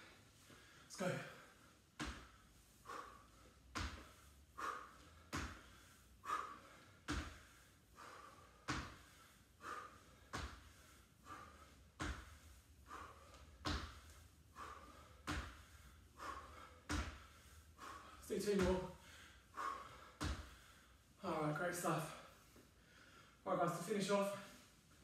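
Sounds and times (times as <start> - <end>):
hard breathing: 0.0 - 23.5
trainers thudding on wooden floor: 13.6 - 14.0, 18.4 - 18.9, 20.2 - 20.5.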